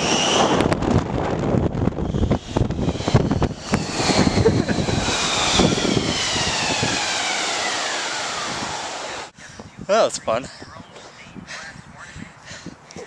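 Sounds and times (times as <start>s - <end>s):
high whine sliding down: 0.0s - 9.4s
wind rushing over microphone: 0.0s - 12.9s
tube scraping over snow: 2.7s - 7.0s.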